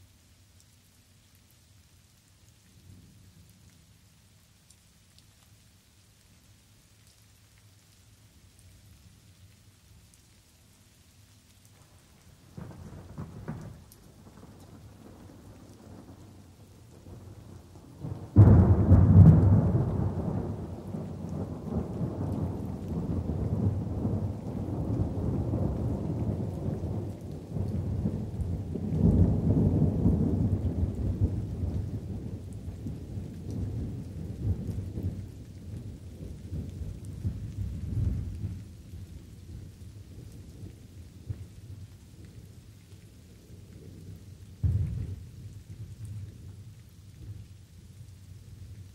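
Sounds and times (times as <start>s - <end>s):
rain patter: 0.0s - 48.9s
distant thunder rumbling: 12.6s - 38.6s, 44.6s - 45.4s
loud rolling thunderclap: 18.0s - 32.4s, 44.6s - 45.2s.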